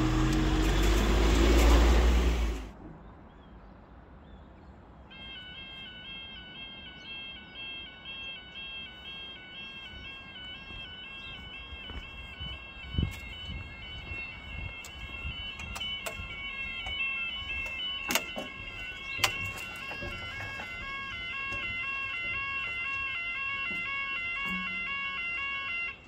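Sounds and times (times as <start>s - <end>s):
two-tone crossing alarm: 0.0s - 2.7s, 5.1s - 26.0s.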